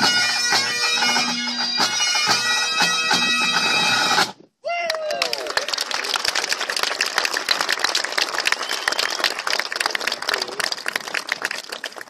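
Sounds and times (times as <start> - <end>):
crowd applauding: 4.8 - 12.0.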